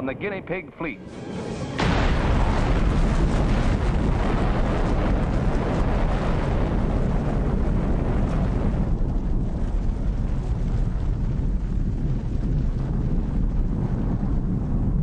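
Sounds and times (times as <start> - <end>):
deep rumbling explosion roar: 0.2 - 15.0.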